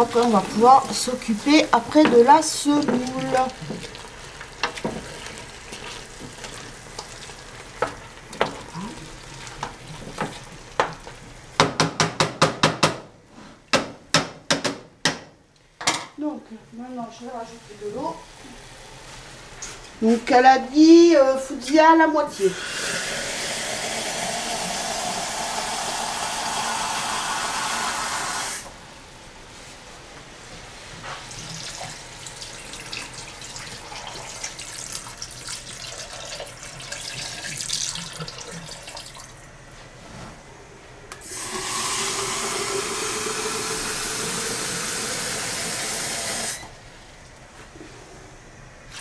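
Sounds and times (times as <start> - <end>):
water splashing into pot: 31.5 - 39.3.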